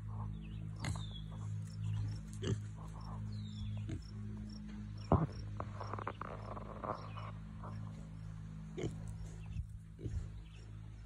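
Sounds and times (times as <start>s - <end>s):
piglets grunting: 0.0s - 1.5s, 2.2s - 4.2s, 8.7s - 10.5s
low hum: 0.0s - 11.0s.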